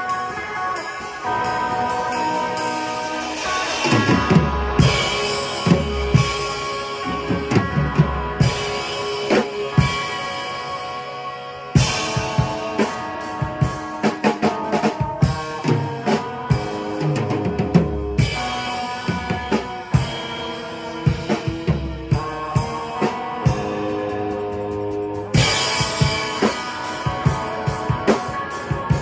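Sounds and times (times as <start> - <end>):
drum kit: 0.0 - 29.0
electric guitar chords: 0.0 - 29.0.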